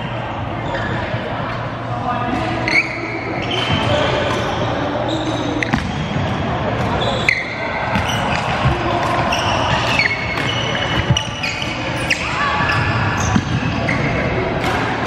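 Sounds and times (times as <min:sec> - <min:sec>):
background chatter: 0:00.0 - 0:15.0
shoes squeaking on court floor: 0:02.4 - 0:14.4.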